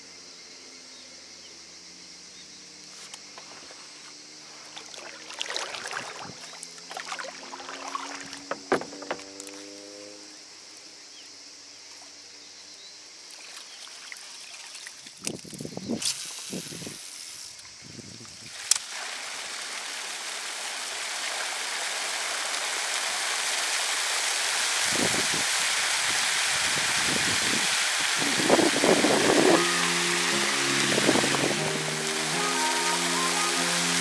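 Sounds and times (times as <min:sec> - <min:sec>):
fountain water spraying: 0:04.6 - 0:09.8, 0:16.0 - 0:17.6, 0:18.4 - 0:34.0.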